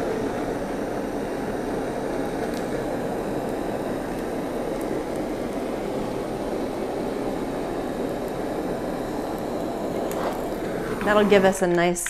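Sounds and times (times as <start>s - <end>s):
blowtorch flame hissing: 0.0s - 11.8s.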